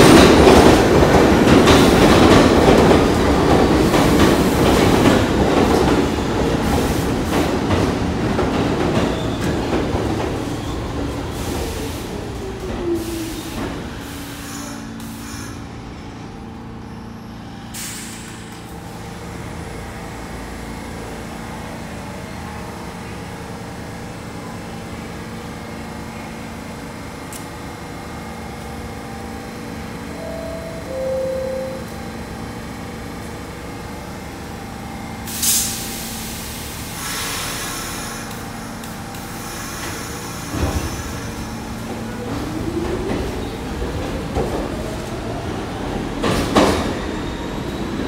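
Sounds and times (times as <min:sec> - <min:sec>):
train electrical hum: 0:11.2 - 0:47.8
air brake hiss: 0:17.7 - 0:18.5, 0:35.3 - 0:41.6
short air hisses: 0:17.8 - 0:18.4, 0:35.3 - 0:38.4
train falling whine: 0:29.1 - 0:32.8
two-note door chime: 0:30.1 - 0:32.0.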